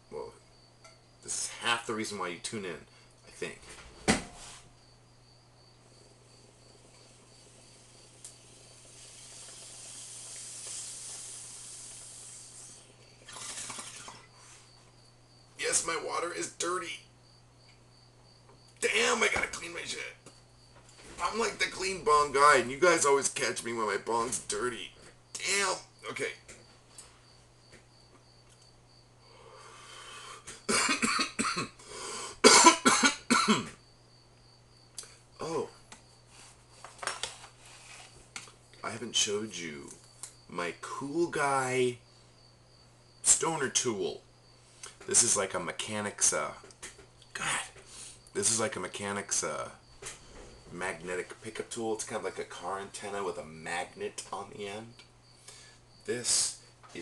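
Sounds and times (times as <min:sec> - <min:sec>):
air hissing through bong water: 0:06.0 - 0:14.8, 0:47.5 - 0:48.3
man coughing hard: 0:30.7 - 0:31.8, 0:32.4 - 0:33.8.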